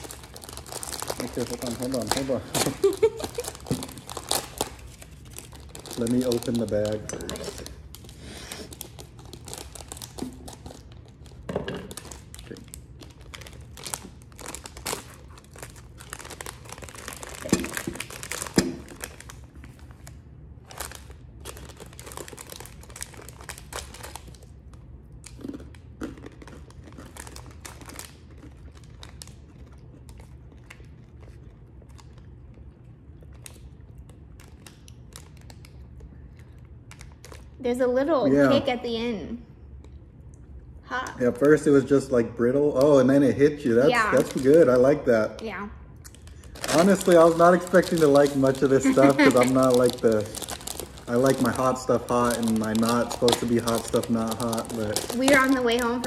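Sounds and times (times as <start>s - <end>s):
crackly bag rustling: 0.0s - 24.4s, 43.9s - 45.0s, 46.2s - 56.0s
faint low hum: 0.0s - 56.0s.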